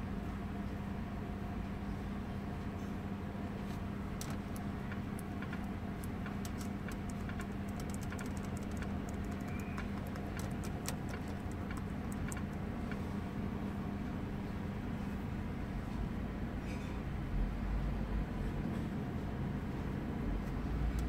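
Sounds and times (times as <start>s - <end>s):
low hum inside car: 0.0s - 14.3s
fingertip tapping touchscreen: 4.2s - 12.6s.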